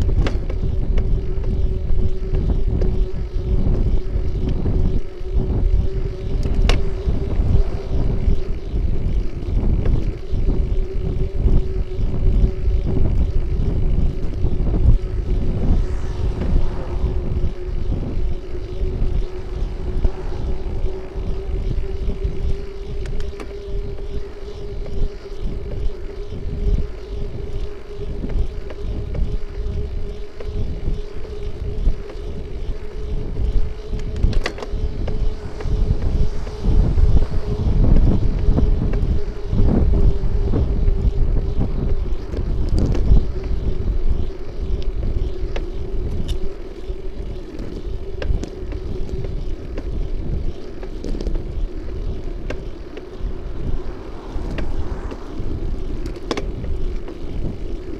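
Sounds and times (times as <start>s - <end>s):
road rumble: 0.0s - 57.9s
steady hum: 0.0s - 57.9s
wind buffeting microphone: 0.0s - 57.9s
car passing: 5.1s - 10.5s, 14.0s - 23.6s, 33.4s - 45.4s, 50.8s - 57.9s.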